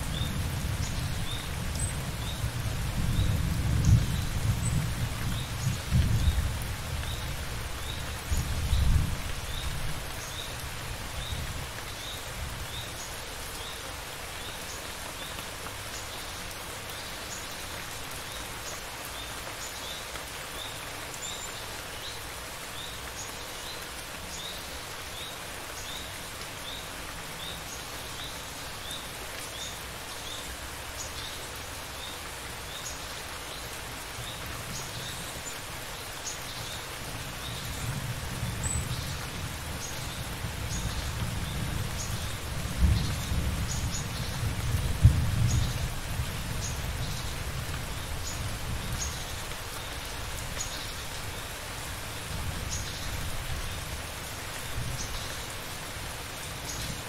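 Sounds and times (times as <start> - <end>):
steady rain falling: 0.0 - 57.0
low thunder rumbles: 42.5 - 47.2.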